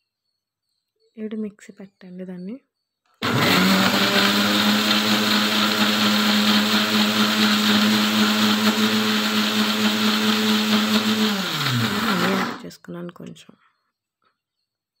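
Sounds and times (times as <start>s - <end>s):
blender running with a hum: 3.2s - 12.6s.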